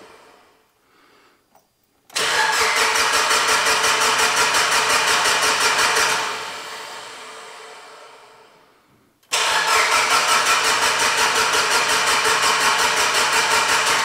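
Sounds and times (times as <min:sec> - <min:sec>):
engine cranking without firing: 0:02.1 - 0:06.2, 0:09.3 - 0:14.0.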